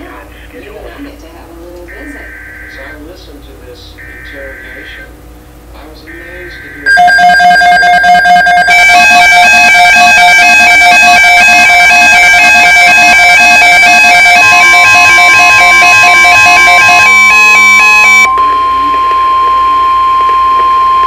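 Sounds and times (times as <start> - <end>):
electronic alarm alternating tones: 6.8 - 21.0
steady single-pitch warning tone: 6.8 - 21.0
harsh buzzing: 6.9 - 21.0.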